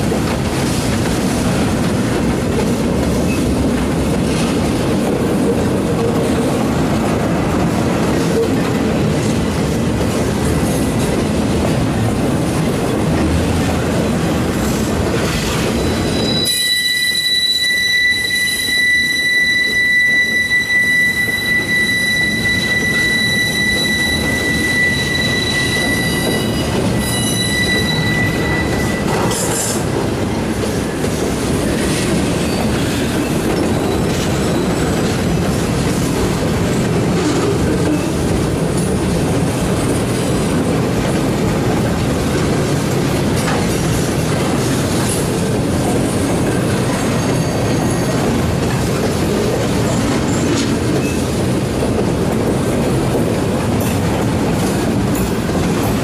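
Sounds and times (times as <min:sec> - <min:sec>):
train wheels clattering on rails: 0:00.0 - 0:56.0
high-pitched train wheel squeal: 0:15.2 - 0:38.9, 0:44.6 - 0:51.6.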